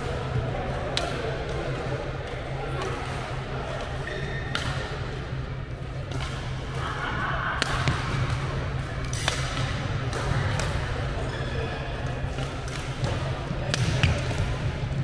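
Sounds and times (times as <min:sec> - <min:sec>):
steady low hum: 0:00.0 - 0:15.0
rackets hitting shuttlecocks: 0:07.6 - 0:10.8.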